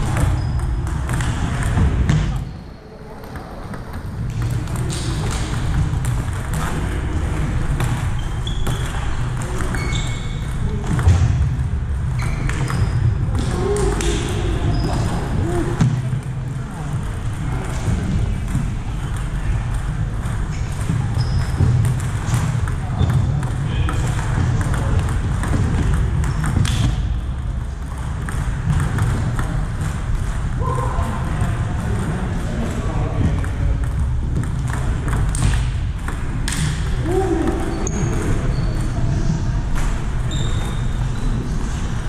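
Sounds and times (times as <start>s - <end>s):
shoe squeaks: 0.1s - 0.8s, 8.1s - 10.7s, 12.2s - 13.1s, 14.6s - 15.6s, 21.1s - 21.8s, 37.4s - 39.1s, 40.2s - 41.8s.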